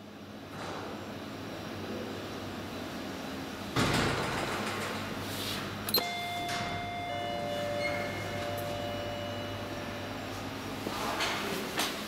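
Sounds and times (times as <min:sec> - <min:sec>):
lift arrival chime: 0:05.9 - 0:10.8.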